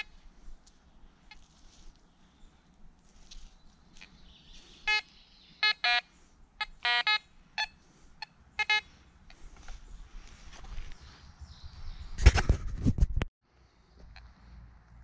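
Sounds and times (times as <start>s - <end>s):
metal detector beeps: 4.8s - 8.9s.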